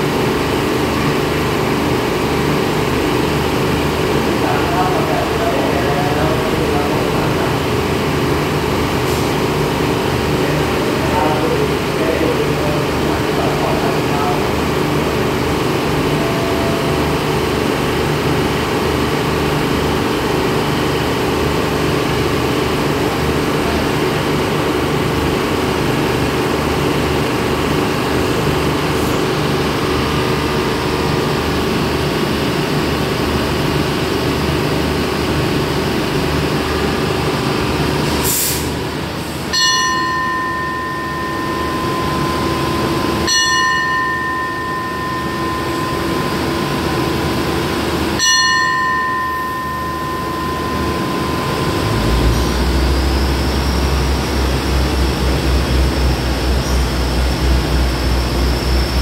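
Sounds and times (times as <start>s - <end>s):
diesel railcar engine idling: 0.0s - 59.0s
air hiss: 38.1s - 39.4s
steady high tone: 38.9s - 59.0s.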